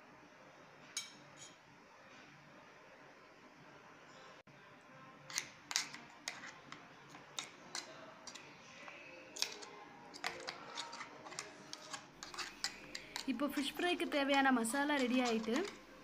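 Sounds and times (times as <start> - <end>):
metal spoon stirring paste: 5.3 - 16.0
spoon clinking against steel: 5.3 - 16.0.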